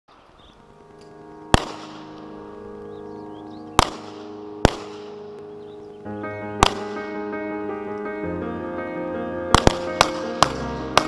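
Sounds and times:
background music: 0:00.1 - 0:11.0
loud gunshots with echo: 0:01.5 - 0:02.1, 0:03.7 - 0:05.2, 0:06.6 - 0:07.1, 0:09.5 - 0:11.0.

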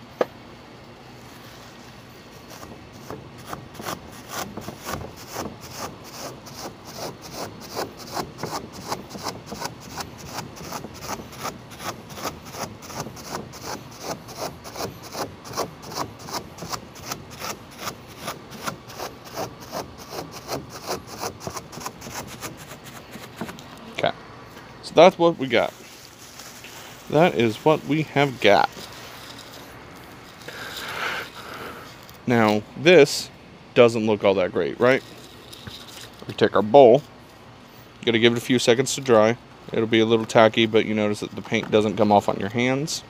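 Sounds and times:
paper dabbing on wet canvas: 0:02.4 - 0:23.7.

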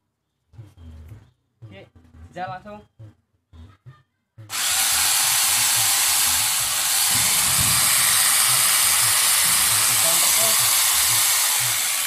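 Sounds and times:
electric chainsaw whirring: 0:04.5 - 0:12.0.

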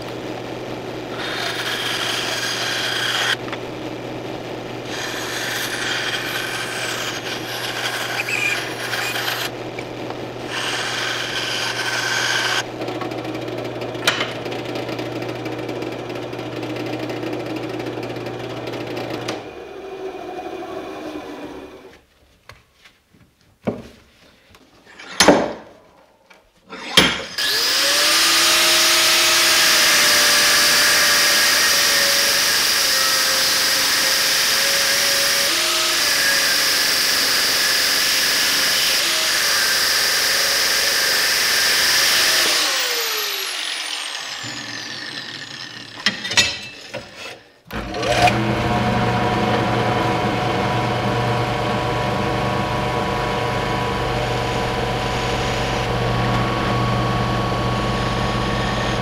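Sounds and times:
angle grinder cutting steel: 0:01.1 - 0:03.4, 0:04.8 - 0:09.6, 0:10.4 - 0:12.7, 0:26.9 - 0:59.0
drill press drilling steel: 0:01.1 - 0:03.4, 0:04.9 - 0:09.5, 0:10.5 - 0:13.1, 0:27.3 - 0:50.8, 0:51.4 - 0:59.0
vise handle clanking: 0:46.0 - 0:47.3.

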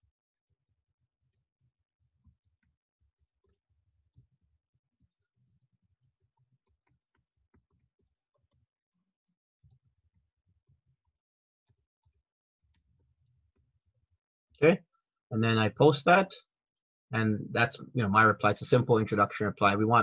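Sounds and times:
faint keyboard typing: 0:00.0 - 0:14.0.

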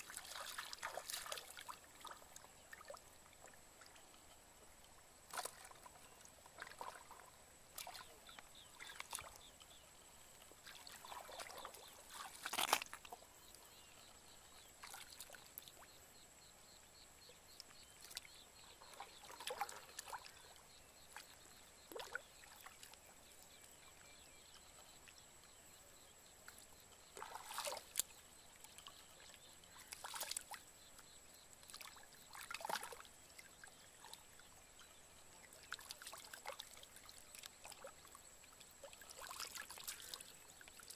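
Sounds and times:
muddy water splashing: 0:00.0 - 0:04.0, 0:05.3 - 0:09.8, 0:10.6 - 0:13.9, 0:27.2 - 0:28.2, 0:29.5 - 0:30.6.

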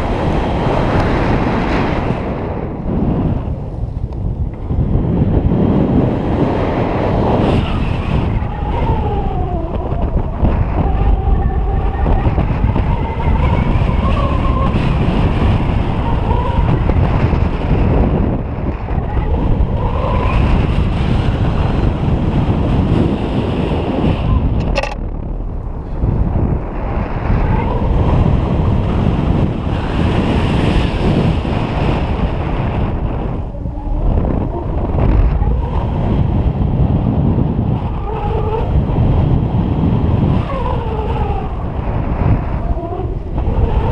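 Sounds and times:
wind buffeting microphone: 0:00.0 - 0:43.9
sharp click: 0:24.6 - 0:25.0.

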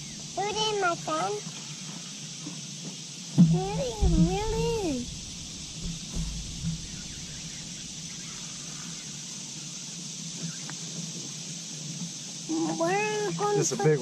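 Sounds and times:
steady high hiss: 0:00.0 - 0:14.0
soft low thumps: 0:03.4 - 0:09.0.

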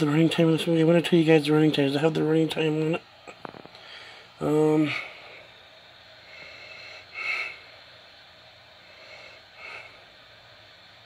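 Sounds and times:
man sniffing: 0:06.4 - 0:07.7.

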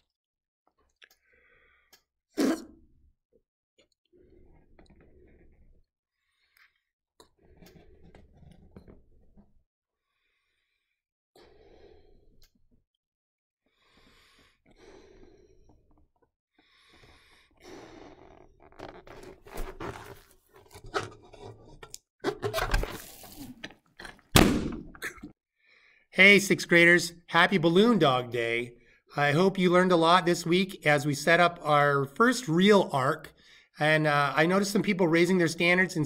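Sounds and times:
balloon rubber squeaking: 0:17.6 - 0:23.5
balloon bursting bang: 0:24.3 - 0:25.0.

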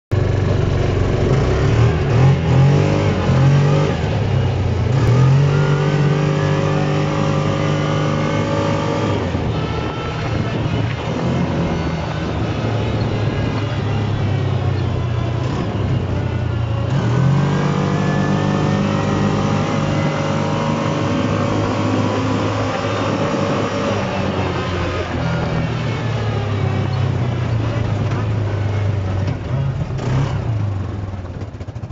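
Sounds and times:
utility vehicle engine revving: 0:00.1 - 0:31.9.

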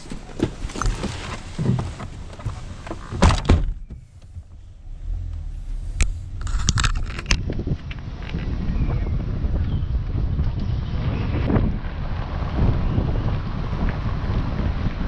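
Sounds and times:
clicks and knocks in cabin: 0:00.0 - 0:04.6
car engine hum: 0:00.0 - 0:15.0
car door slamming: 0:01.6 - 0:06.4.

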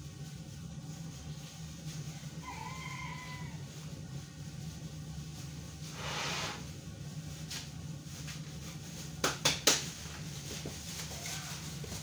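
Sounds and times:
steady low hum: 0:00.0 - 0:12.0
gas hiss: 0:05.9 - 0:06.7.

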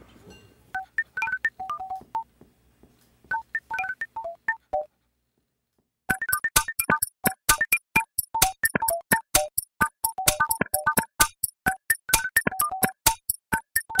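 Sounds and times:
electronic bleeping music: 0:06.1 - 0:13.0.

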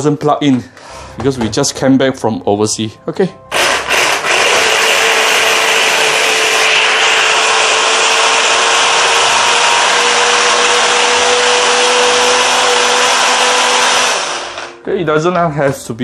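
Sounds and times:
electric stick blender grinding: 0:03.5 - 0:14.8.

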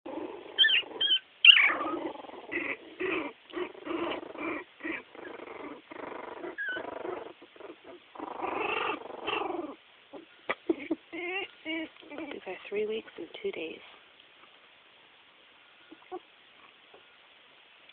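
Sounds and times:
puppies whimpering and squealing: 0:00.1 - 0:12.6, 0:15.9 - 0:16.3.

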